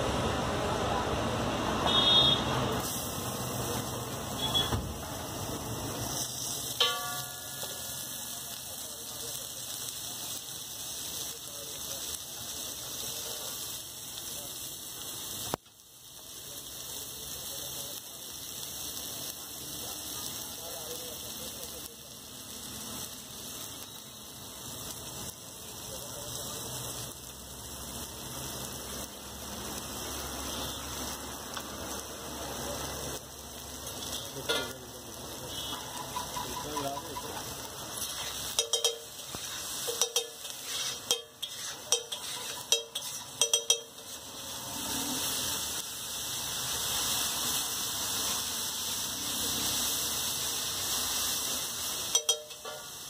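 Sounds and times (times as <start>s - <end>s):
food sizzling in oil: 0.0s - 53.0s
metal spatula clinking on griddle: 6.1s - 8.5s, 34.0s - 34.9s, 35.7s - 44.2s, 52.0s - 53.0s.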